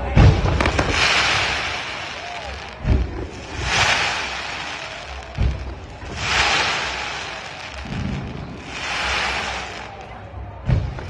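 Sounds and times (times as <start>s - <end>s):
fireworks hissing and crackling: 0.0s - 11.0s
dull low thump: 5.3s - 6.1s, 10.6s - 11.0s.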